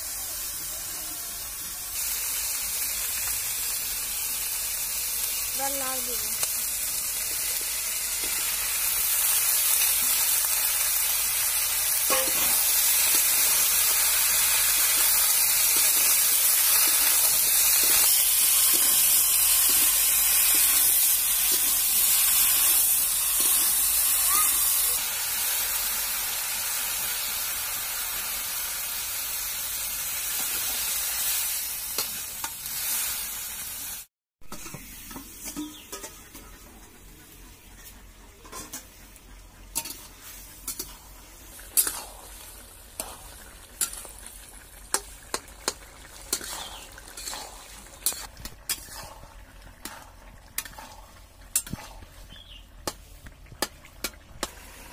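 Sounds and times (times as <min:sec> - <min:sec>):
food sizzling in a wok: 0:00.0 - 0:36.6, 0:39.6 - 0:54.9
spatula scraping a wok: 0:07.3 - 0:24.9, 0:30.0 - 0:53.3.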